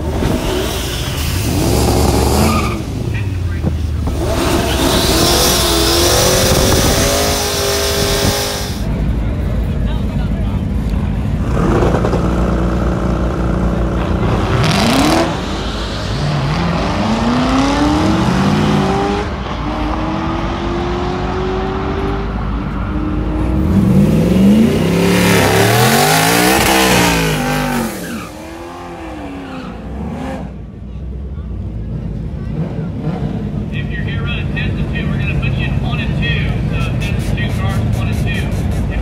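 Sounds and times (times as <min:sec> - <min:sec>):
loud rush of noise: 0:00.0 - 0:30.7
truck engine idling and revving: 0:00.0 - 0:39.0.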